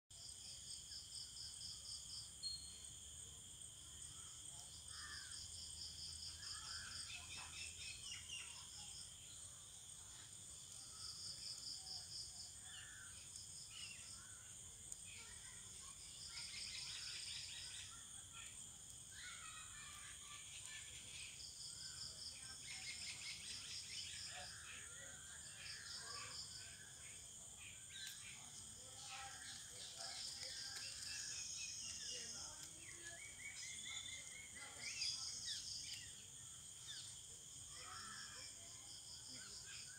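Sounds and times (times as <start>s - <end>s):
insects trilling and buzzing: 0.2s - 39.9s
bird chirps: 2.4s - 2.9s, 22.4s - 36.2s.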